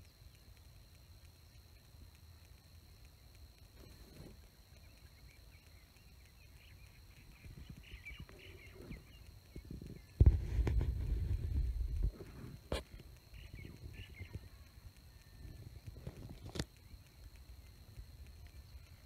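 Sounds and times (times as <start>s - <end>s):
faint bird calls: 3.8s - 17.4s.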